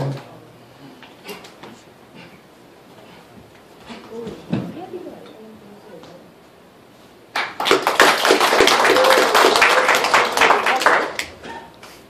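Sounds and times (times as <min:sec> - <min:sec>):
small audience clapping: 0:07.3 - 0:12.0.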